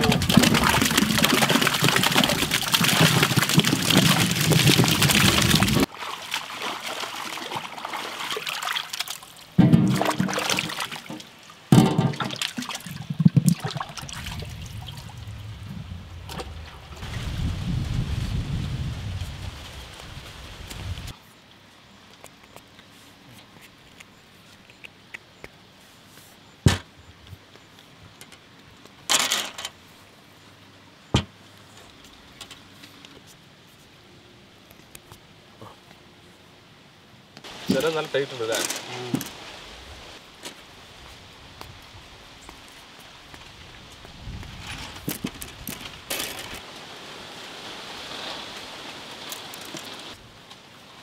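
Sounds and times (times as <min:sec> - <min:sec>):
steady hiss: 0:37.4 - 0:51.0.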